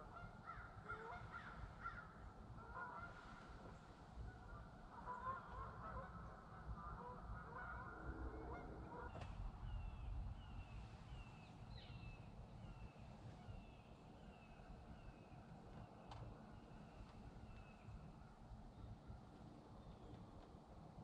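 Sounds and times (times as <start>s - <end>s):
geese honking: 0.0s - 1.6s, 2.6s - 3.6s, 4.3s - 9.2s.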